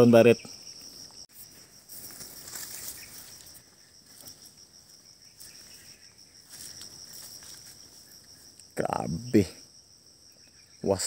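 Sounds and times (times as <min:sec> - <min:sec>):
insects trilling: 0:00.0 - 0:11.0
faint rustling: 0:01.3 - 0:08.5.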